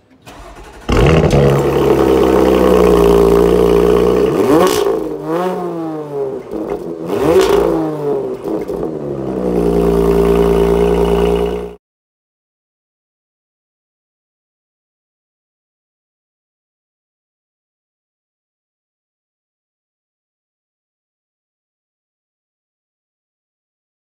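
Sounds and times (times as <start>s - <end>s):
car engine idling: 0.0s - 11.8s
engine throttle blips: 0.1s - 11.8s.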